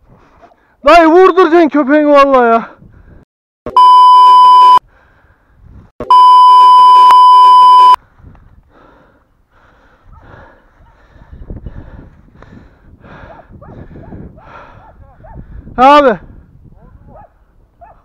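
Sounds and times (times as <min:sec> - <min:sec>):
censor bleeps: 0:03.7 - 0:04.8, 0:06.0 - 0:08.0.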